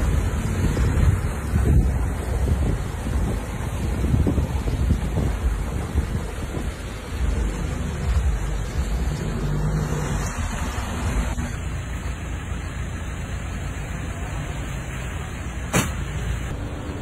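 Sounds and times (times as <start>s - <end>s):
wind on microphone: 0.0s - 11.7s
vehicle engines running: 0.0s - 17.0s.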